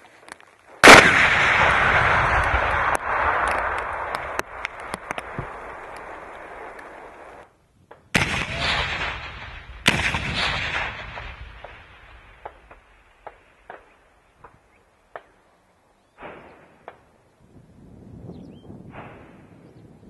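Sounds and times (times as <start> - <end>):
sharp blast report: 0.8 - 4.6
demolition blasts rumbling: 0.8 - 7.4, 8.1 - 13.0.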